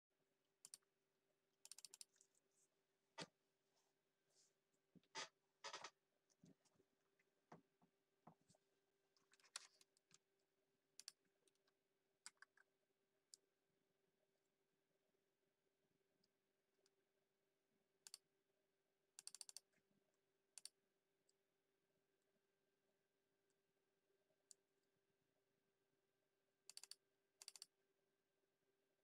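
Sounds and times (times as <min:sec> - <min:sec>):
keyboard and mouse clicks: 0:00.6 - 0:00.8, 0:01.6 - 0:02.2, 0:12.2 - 0:12.7, 0:19.2 - 0:19.7, 0:26.7 - 0:27.7.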